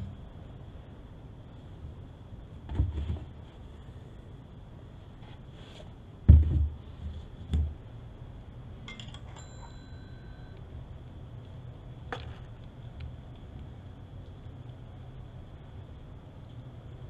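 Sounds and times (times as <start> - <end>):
plastic jug thumps: 6.3 - 6.8
metallic clink of wrench: 8.9 - 10.2.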